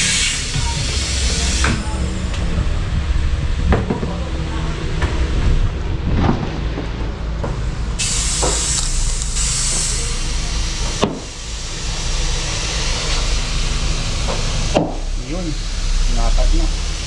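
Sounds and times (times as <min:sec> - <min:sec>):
compressed air hissing into tyre: 0:00.0 - 0:02.0, 0:08.0 - 0:17.0
steady low hum: 0:00.0 - 0:17.0.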